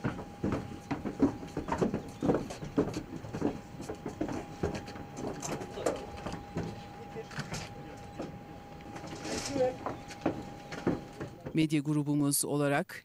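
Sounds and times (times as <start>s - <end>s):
boot footsteps on metal ramp: 0.0s - 11.6s
faint steady high tone: 5.2s - 11.4s.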